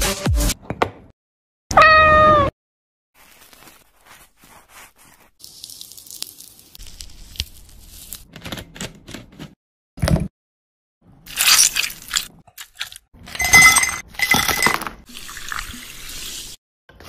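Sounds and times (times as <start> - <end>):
pith tearing off orange: 5.3 - 8.3.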